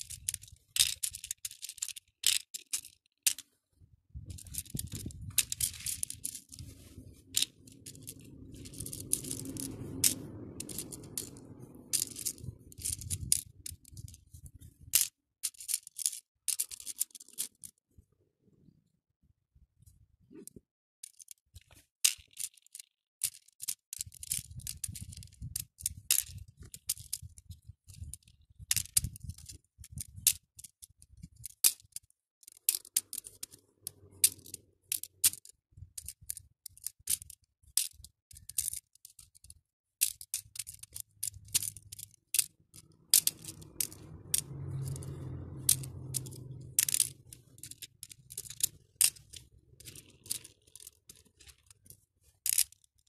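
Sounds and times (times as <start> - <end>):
beads clicking in plastic tray: 0.0 - 3.5, 4.3 - 14.2, 14.9 - 17.7, 21.0 - 27.5, 28.1 - 53.0
low rumble: 4.1 - 14.7, 42.6 - 50.2.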